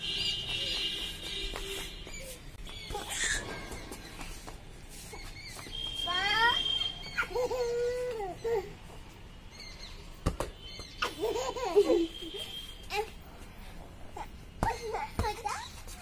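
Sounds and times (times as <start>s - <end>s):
small child squealing: 2.1s - 4.0s
child giggling: 7.2s - 8.7s, 11.0s - 13.1s.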